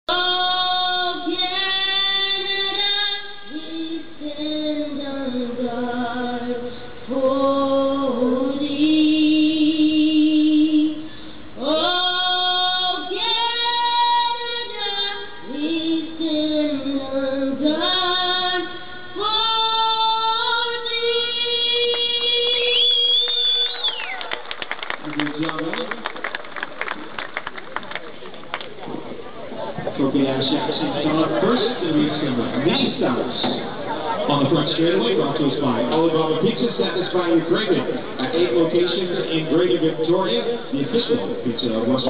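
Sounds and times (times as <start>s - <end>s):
woman singing: 0.1s - 24.2s.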